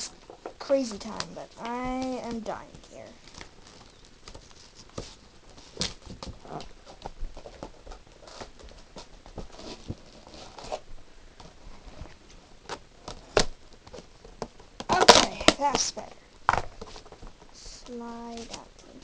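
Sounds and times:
plastic snapping: 12.7s - 15.7s.

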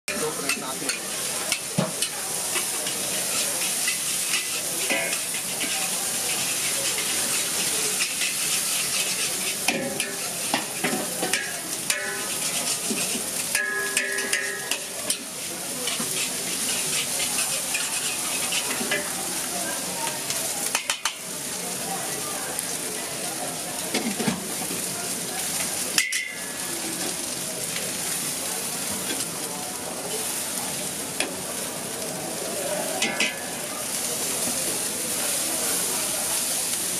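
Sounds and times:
metal ladle scraping a wok: 0.1s - 19.2s, 33.0s - 33.6s
oil sizzling in a wok: 0.1s - 36.9s.

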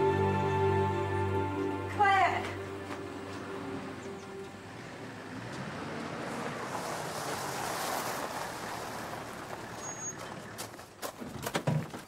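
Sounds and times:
vehicle tyres on dirt and engine: 0.0s - 12.0s.

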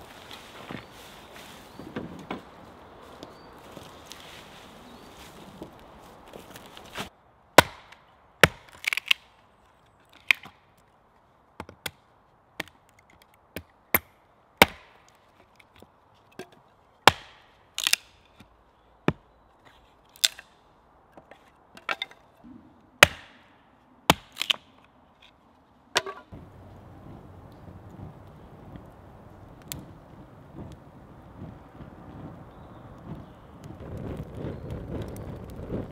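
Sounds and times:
hatchet chopping wood: 7.6s - 9.2s, 12.6s - 15.1s, 17.0s - 18.2s, 23.0s - 23.5s, 24.1s - 24.7s.

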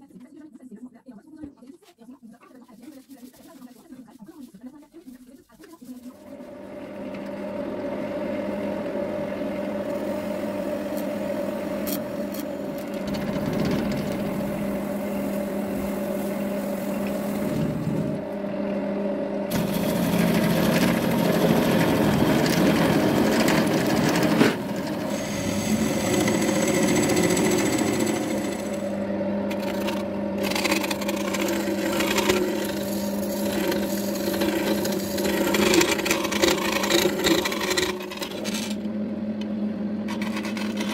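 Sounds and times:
lathe motor hum: 5.9s - 40.9s
hollowing tool cutting: 9.5s - 18.2s, 19.5s - 28.9s, 29.5s - 38.9s, 40.1s - 40.9s
drill bit boring into wood: 11.8s - 15.8s, 19.5s - 28.9s, 29.5s - 38.8s, 40.1s - 40.9s.

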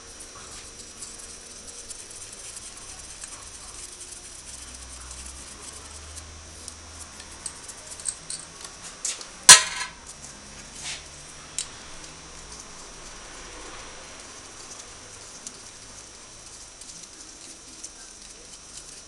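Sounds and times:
metal tools clicking and clinking: 7.4s - 8.8s, 9.5s - 10.2s
metal clank: 9.5s - 10.0s.

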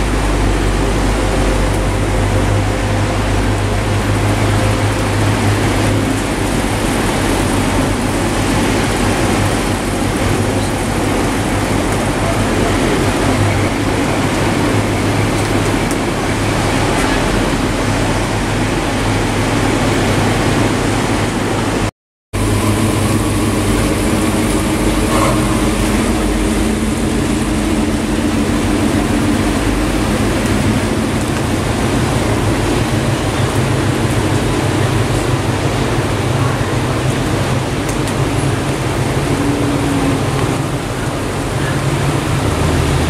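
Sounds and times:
car engines passing: 22.4s - 43.0s.

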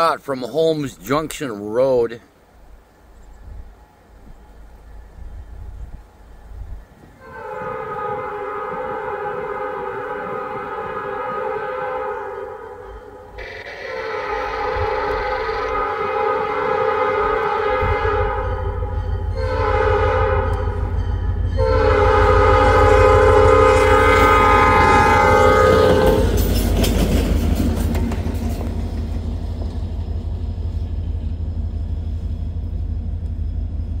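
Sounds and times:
diesel locomotive rumbling: 0.0s - 34.0s
locomotive air horn blasts: 7.2s - 26.4s.

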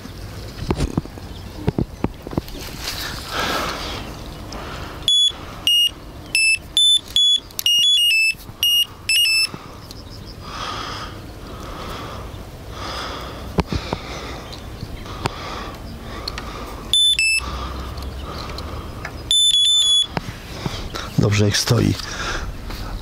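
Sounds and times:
bite alarm beeping: 5.0s - 9.6s, 16.9s - 18.3s, 19.2s - 20.2s.

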